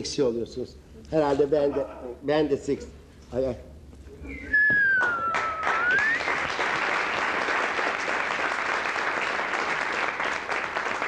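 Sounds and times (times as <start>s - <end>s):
rising whistle: 4.3s - 6.6s
audience applauding: 4.9s - 11.0s.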